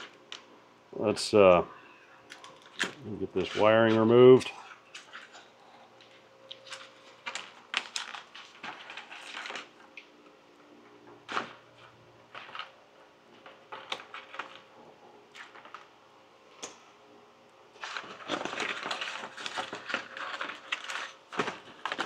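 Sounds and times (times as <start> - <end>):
foam parts cracking and scraping: 6.5 - 9.8, 17.8 - 22.0.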